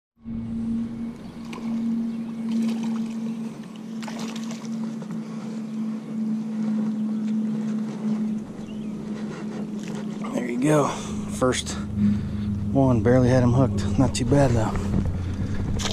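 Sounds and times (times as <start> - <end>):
steady low hum: 0.2 - 15.9
wind noise on microphone: 11.9 - 15.9.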